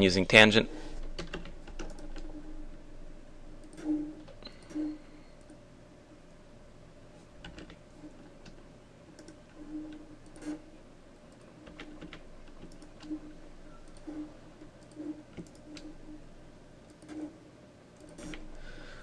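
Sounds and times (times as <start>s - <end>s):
faint steady hum: 0.0s - 19.0s
computer keyboard clicks: 1.2s - 2.3s, 7.4s - 7.8s, 8.4s - 9.4s, 11.3s - 13.2s, 14.8s - 15.9s.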